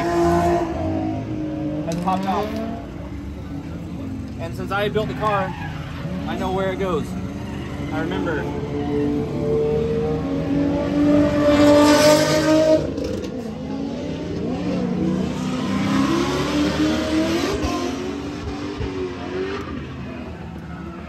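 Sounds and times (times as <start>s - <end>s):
car engine revving hard: 9.4s - 19.8s.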